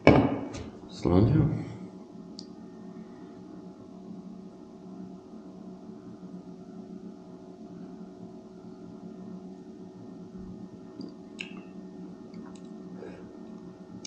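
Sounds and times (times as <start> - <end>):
low hum of held tones: 0.0 - 14.0.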